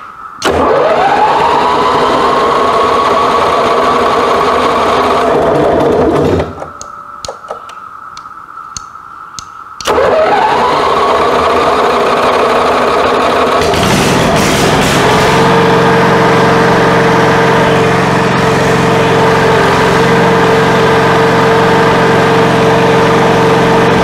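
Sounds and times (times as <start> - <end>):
generator engine running: 0.4 - 6.8, 9.8 - 24.0
clicks: 6.4 - 10.0.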